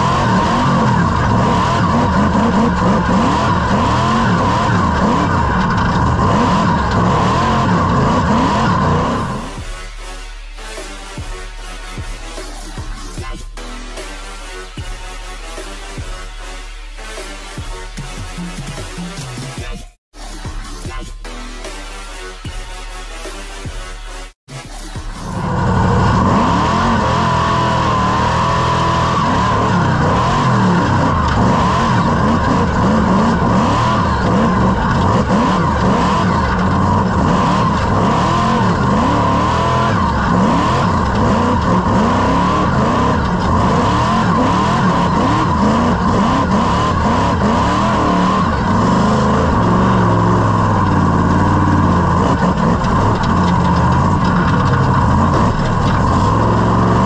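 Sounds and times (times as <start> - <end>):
engine revving hard: 0.0 - 9.7, 24.9 - 57.0
steady high supercharger whine: 0.0 - 9.7, 25.0 - 57.0.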